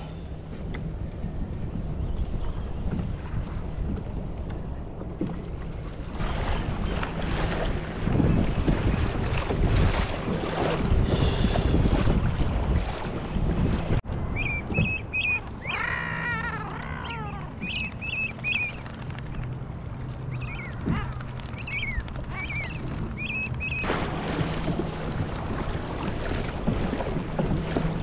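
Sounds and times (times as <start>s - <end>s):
water splashing at kayak bow: 5.1s - 14.0s, 23.1s - 28.0s
wind on microphone: 6.1s - 15.6s
seabirds chirping: 14.2s - 23.9s
seabird call falling in pitch: 14.4s - 18.9s.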